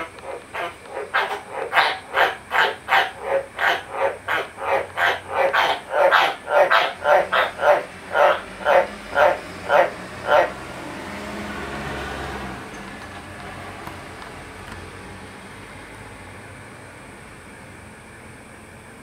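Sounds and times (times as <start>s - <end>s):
frog croaking: 0.0s - 11.1s.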